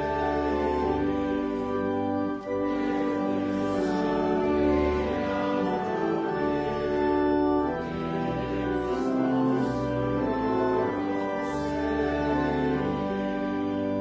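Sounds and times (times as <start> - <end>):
church organ chords: 0.0 - 14.0.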